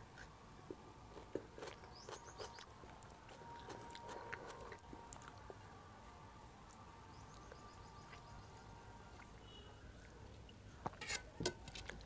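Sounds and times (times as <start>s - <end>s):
person chewing food: 0.0s - 5.7s.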